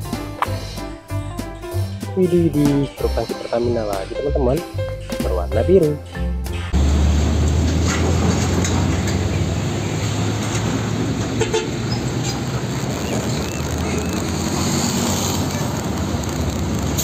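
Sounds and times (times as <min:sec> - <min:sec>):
road traffic: 0:00.0 - 0:02.2, 0:06.1 - 0:17.0
diesel truck engine rumbling: 0:00.0 - 0:17.0.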